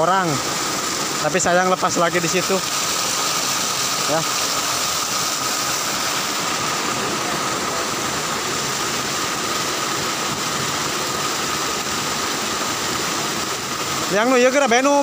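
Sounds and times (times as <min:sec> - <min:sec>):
water pouring over small waterfall: 0:00.0 - 0:15.0.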